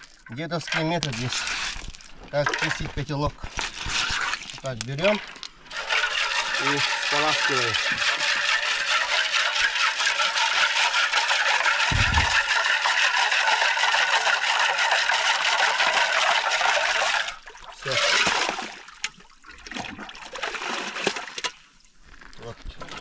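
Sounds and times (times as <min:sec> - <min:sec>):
water splash: 0:11.6 - 0:21.6
water rushing and sloshing: 0:11.7 - 0:15.1.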